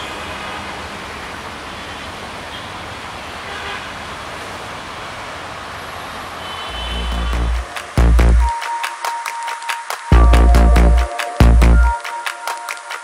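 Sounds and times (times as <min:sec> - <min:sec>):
low booming music: 0:07.1 - 0:08.5, 0:10.2 - 0:12.1.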